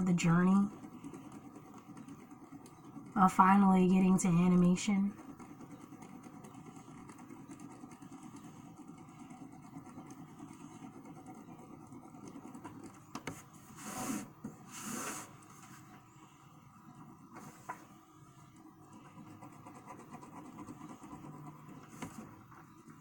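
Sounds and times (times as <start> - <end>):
pencil scratching on paper: 0.0 - 15.9, 16.9 - 23.0
sketchbook sliding on table: 13.2 - 15.8.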